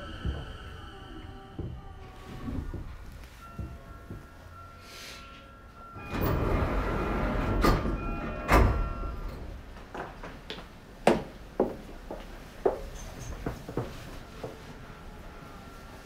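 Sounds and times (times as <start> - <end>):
train doors sliding open: 5.9 - 10.4.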